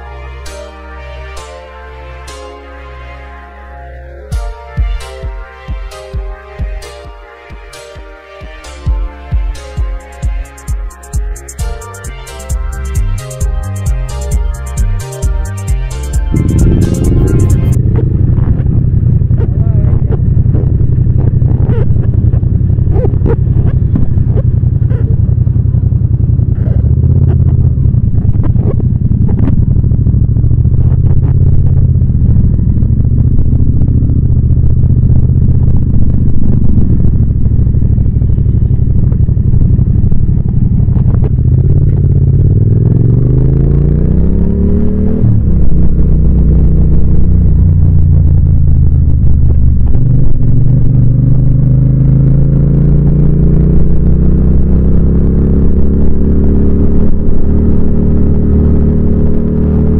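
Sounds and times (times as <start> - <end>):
motorcycle engine revving: 11.3 - 59.9.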